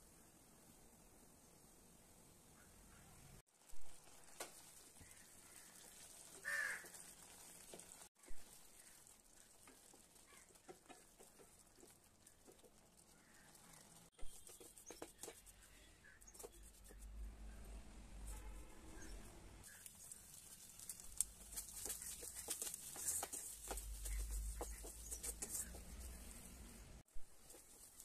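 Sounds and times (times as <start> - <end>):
spatula scraping pan: 21.4 - 26.4.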